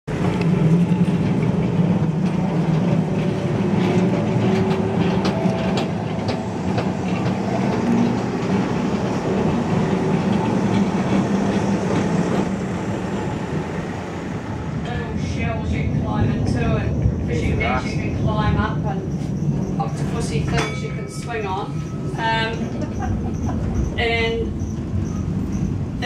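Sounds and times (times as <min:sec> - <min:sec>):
tram rumbling along rails: 0:00.0 - 0:26.0
wheels clicking on track: 0:00.2 - 0:15.1.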